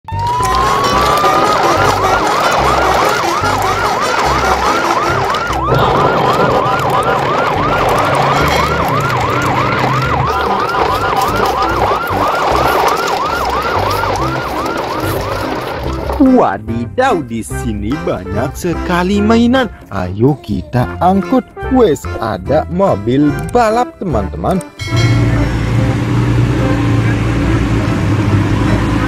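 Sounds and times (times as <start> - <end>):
siren yelping: 0.0 - 16.4.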